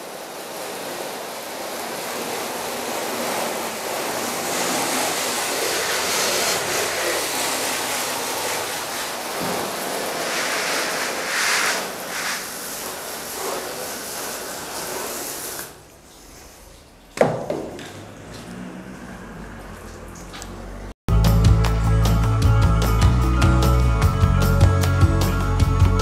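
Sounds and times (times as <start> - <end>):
water jet spraying car: 0.0 - 15.9.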